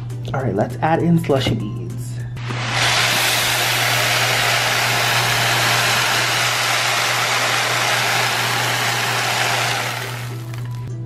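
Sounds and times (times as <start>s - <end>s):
plastic beads pouring into tub: 2.7s - 10.8s.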